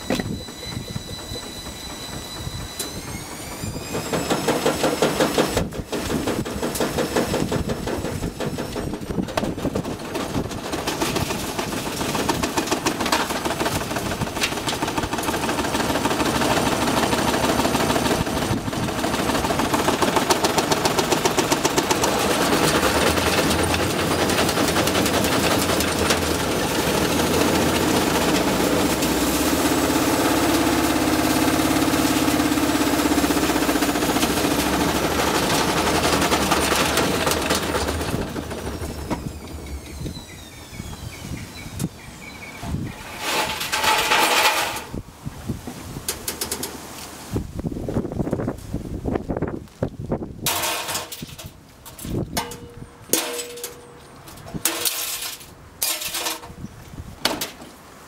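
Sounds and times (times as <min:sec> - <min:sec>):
washing machine rattling and banging: 0:00.0 - 0:40.1, 0:42.6 - 0:45.0, 0:50.4 - 0:56.6, 0:57.2 - 0:57.8
high motor whine: 0:00.0 - 0:45.1.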